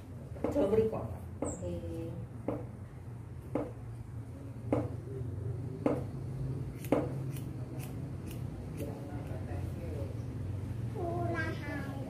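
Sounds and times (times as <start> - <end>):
scissors snipping hair: 6.7 - 9.4.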